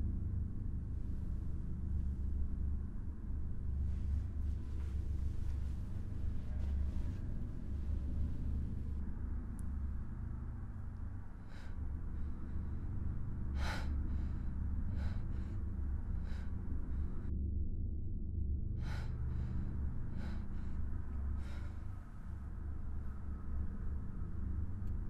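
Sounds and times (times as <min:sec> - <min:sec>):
low steady hum: 0:00.0 - 0:25.0
woman gasping breaths: 0:11.4 - 0:17.3, 0:18.8 - 0:22.3.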